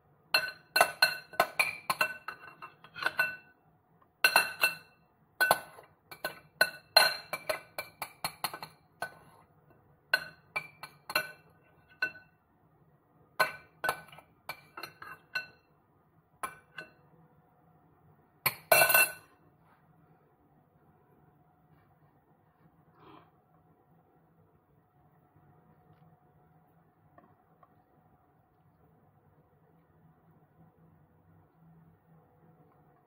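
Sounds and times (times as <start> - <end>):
utensil clinking glass bowl: 0.4 - 3.5, 4.2 - 9.3, 10.1 - 12.4, 13.4 - 15.7, 18.5 - 19.3.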